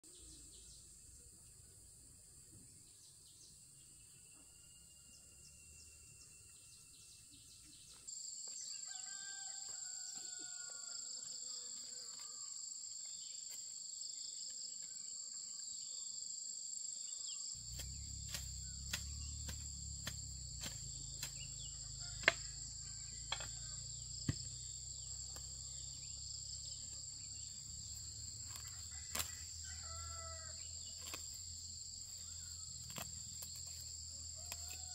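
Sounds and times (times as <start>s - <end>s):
high-pitched insect drone: 17.3s - 34.6s
hoe striking ground: 17.6s - 25.6s.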